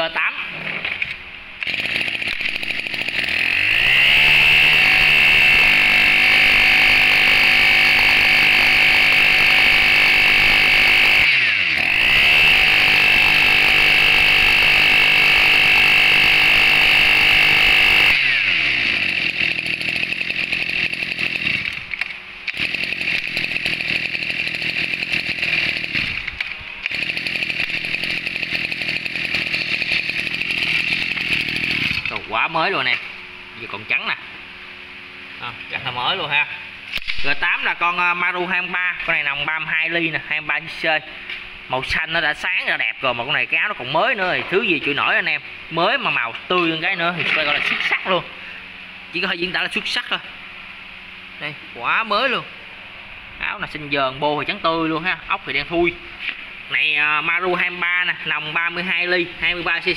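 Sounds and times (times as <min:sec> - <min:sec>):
brush cutter engine: 0:01.6 - 0:33.7, 0:44.0 - 0:50.1, 0:54.4 - 0:59.9.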